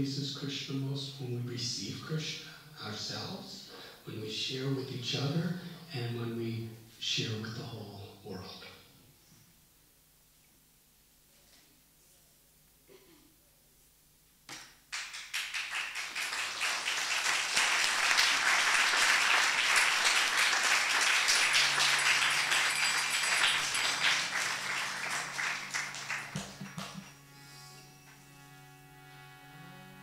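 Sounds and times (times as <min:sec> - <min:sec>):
audience applauding: 0:14.9 - 0:27.2.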